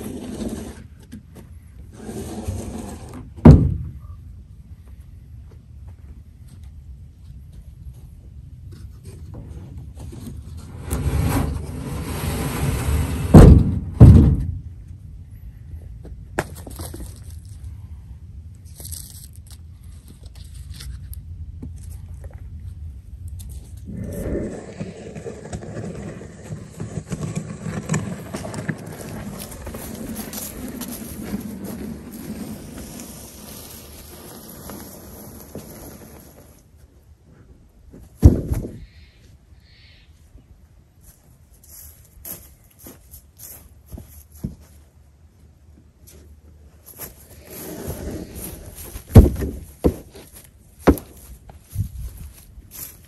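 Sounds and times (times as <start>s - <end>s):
wooden bench scraping on wood: 0.0s - 1.1s, 1.9s - 3.3s, 9.4s - 13.5s, 23.9s - 36.6s, 47.2s - 50.3s
plank scraping over grass: 0.0s - 3.8s, 8.7s - 14.5s, 23.4s - 38.8s, 46.0s - 53.0s
loud wooden thuds: 3.4s - 4.0s, 13.2s - 14.7s, 38.2s - 38.8s, 49.0s - 50.2s, 50.8s - 51.2s.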